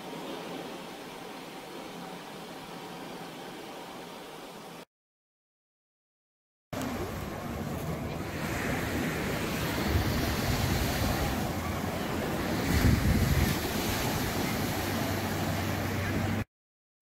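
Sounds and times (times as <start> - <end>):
surf on pebble beach: 6.8 - 16.4
wind on microphone: 6.8 - 16.4.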